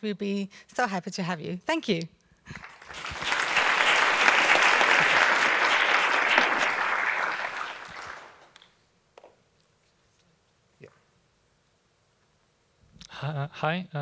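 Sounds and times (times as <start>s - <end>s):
audience applauding: 2.5s - 8.7s.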